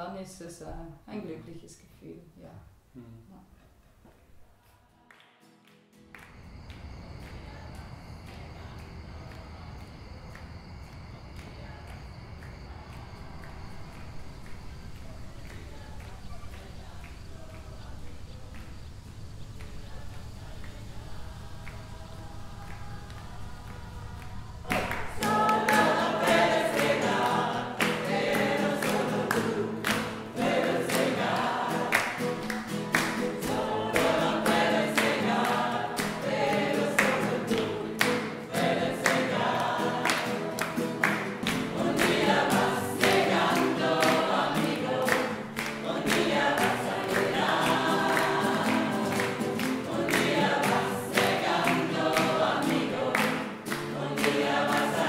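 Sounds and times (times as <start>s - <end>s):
group of voices singing: 12.8s - 55.0s.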